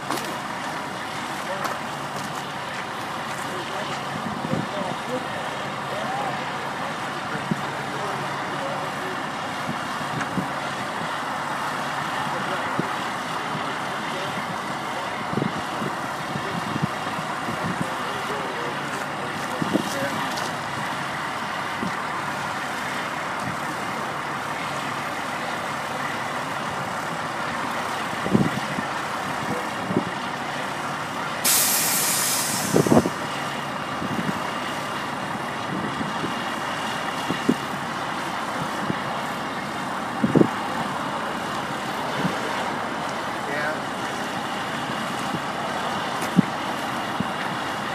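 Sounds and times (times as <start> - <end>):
heavy truck idling: 0.0 - 47.9
air hiss: 31.4 - 33.2.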